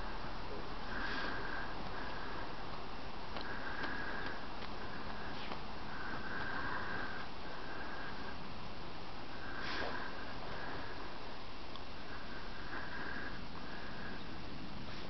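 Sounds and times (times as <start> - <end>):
dog sniffing and snuffling in snow: 0.5 - 8.3, 9.4 - 11.3, 14.7 - 15.0.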